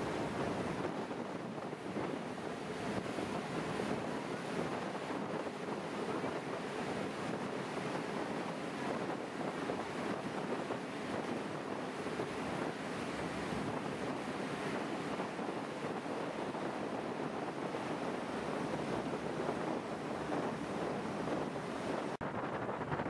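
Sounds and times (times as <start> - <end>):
water rushing in boat wake: 0.0 - 23.0
wind buffeting microphone: 0.0 - 23.0.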